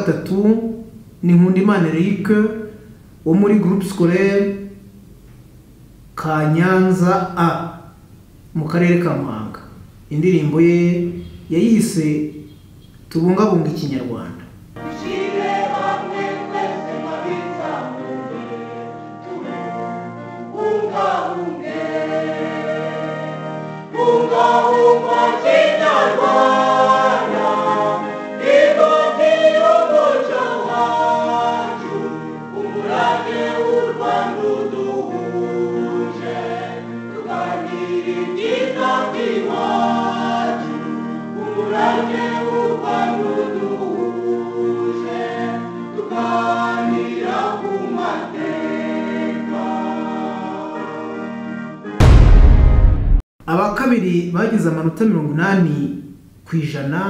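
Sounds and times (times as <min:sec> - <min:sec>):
people singing: 0:14.8 - 0:51.2.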